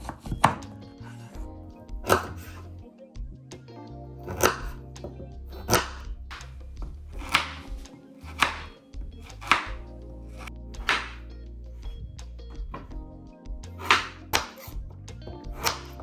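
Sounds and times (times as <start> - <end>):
knife chopping on wooden board: 0.0 - 0.7, 2.0 - 2.5, 4.3 - 4.8, 5.7 - 9.8, 10.4 - 11.2, 13.8 - 14.7, 15.6 - 16.0
background music: 0.0 - 16.0.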